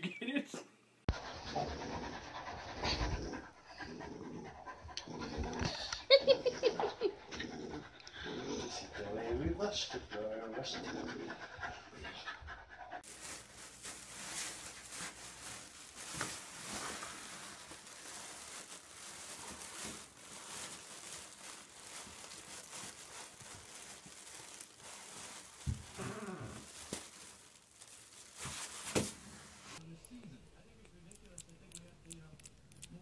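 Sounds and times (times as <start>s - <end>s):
puppy panting: 1.1s - 5.6s, 7.3s - 13.0s, 29.8s - 33.0s
plastic bag crinkling: 13.0s - 33.0s.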